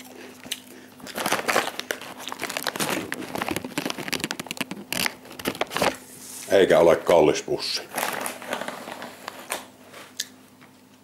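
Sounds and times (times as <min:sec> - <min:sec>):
plastic snack bag crinkling: 0:00.0 - 0:06.0, 0:07.8 - 0:10.2.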